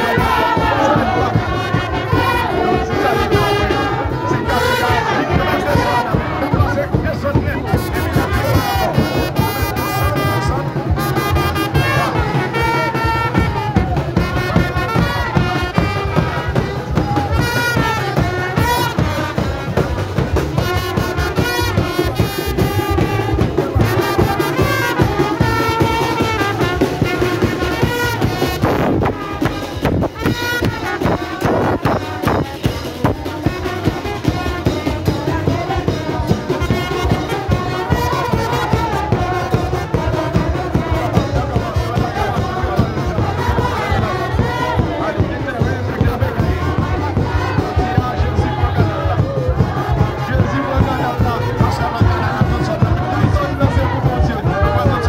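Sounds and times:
brass band playing: 0.0 - 55.0
drum: 0.0 - 55.0.

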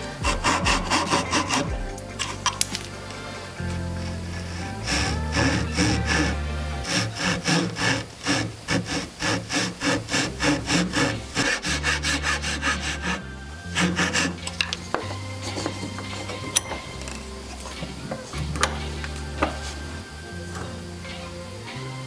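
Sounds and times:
hand saw cutting wood: 0.0 - 2.6, 4.0 - 16.7.

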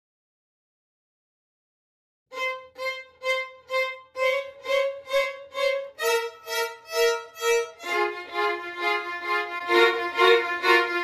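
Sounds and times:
violin music: 2.3 - 11.0.

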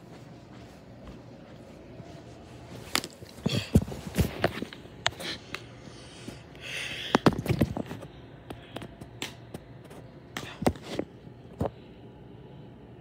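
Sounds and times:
footsteps: 0.0 - 4.8.

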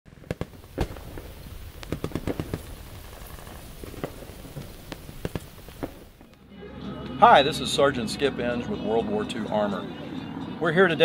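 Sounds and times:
sharp pops and cracks: 0.2 - 6.4.

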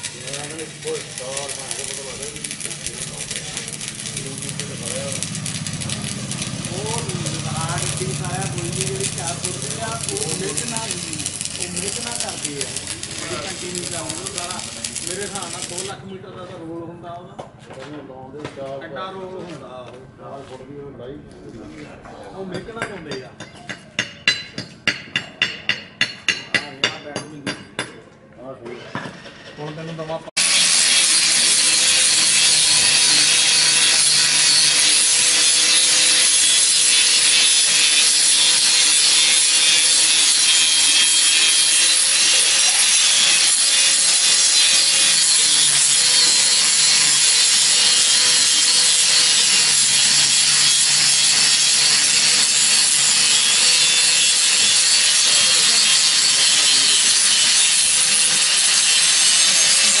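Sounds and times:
angle grinder grinding metal: 0.0 - 16.0, 29.9 - 60.0
grinder motor hum: 0.0 - 16.0, 30.4 - 60.0.

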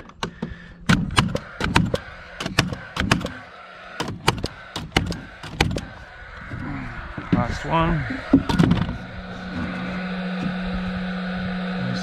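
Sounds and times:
nailer firing nails: 0.0 - 3.4, 4.0 - 5.9.

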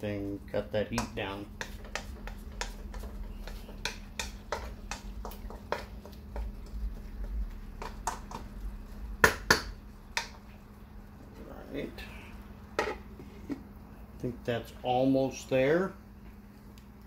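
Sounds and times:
spatula knocking on pan: 0.9 - 8.5, 9.2 - 10.4
wooden spatula scraping a wok: 1.2 - 9.0.

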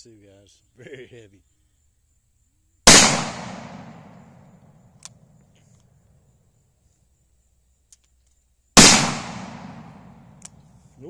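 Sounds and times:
gunshot echo: 2.9 - 4.7, 8.8 - 10.5.

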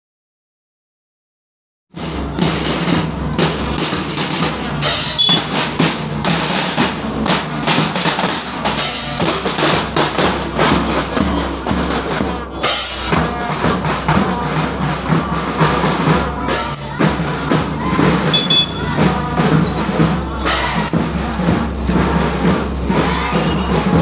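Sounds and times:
snare drums marching rhythm: 2.0 - 24.0.

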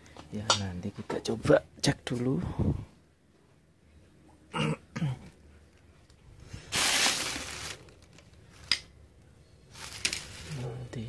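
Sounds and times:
person clearing throat: 4.5 - 5.4.

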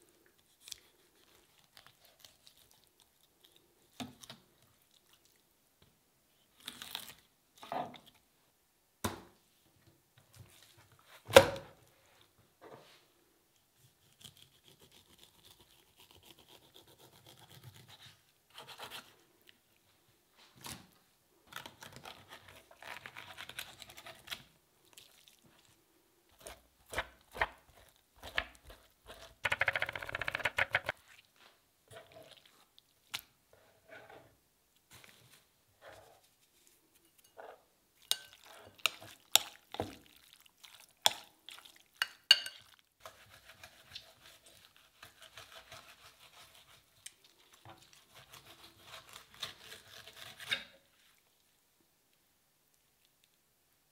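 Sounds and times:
knife scraping fish skin: 43.0 - 47.1, 47.9 - 50.8.

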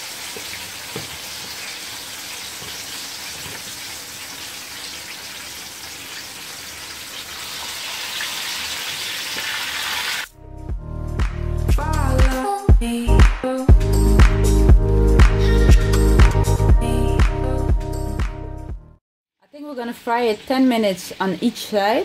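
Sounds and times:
fish sizzling in frying pan: 0.0 - 10.3
pop music: 10.7 - 18.8.

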